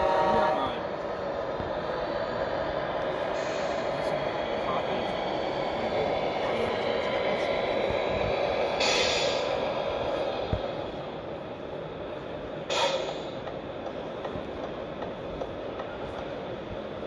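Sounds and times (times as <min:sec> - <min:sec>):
short hisses: 0:03.4 - 0:03.9, 0:08.8 - 0:09.6.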